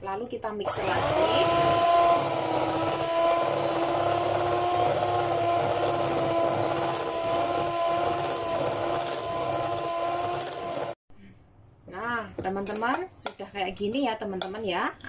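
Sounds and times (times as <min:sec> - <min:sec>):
electric mixer motor whine: 0:00.7 - 0:11.0.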